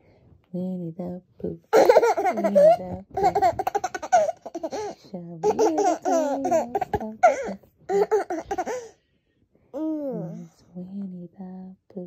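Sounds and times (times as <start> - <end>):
woman speaking: 0.5 - 3.4, 5.0 - 7.6, 10.0 - 12.0.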